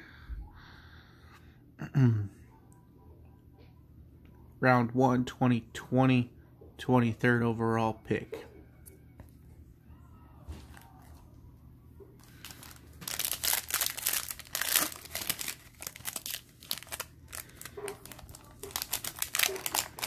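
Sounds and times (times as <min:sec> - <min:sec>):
foil wrapper crinkling: 0:12.2 - 0:20.0.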